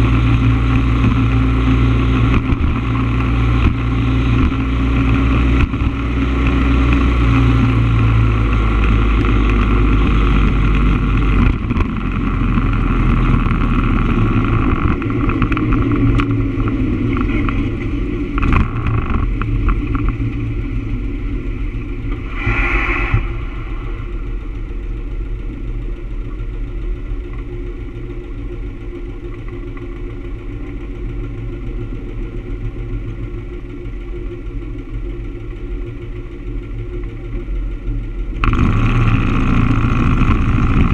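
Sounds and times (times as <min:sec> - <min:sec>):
motorcycle engine running and idling: 0:00.0 - 0:22.4, 0:23.2 - 0:40.9
road noise: 0:00.0 - 0:40.9
brief high squeal: 0:22.2 - 0:24.0.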